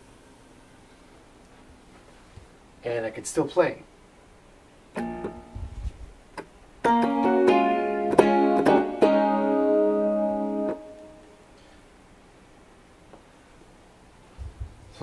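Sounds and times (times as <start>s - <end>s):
keyboard notes held together: 6.8s - 11.3s
keyboard chord: 6.8s - 11.4s.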